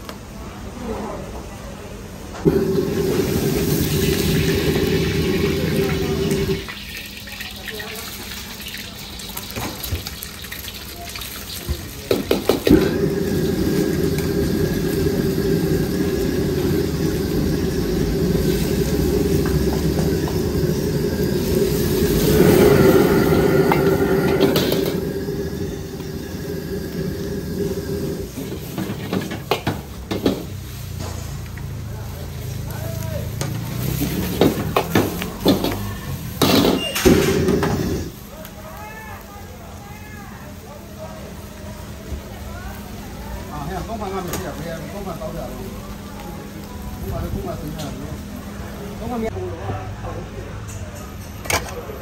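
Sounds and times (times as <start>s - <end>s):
food sizzling in wok: 2.4s - 49.4s
metal ladle scraping wok: 18.4s - 29.6s.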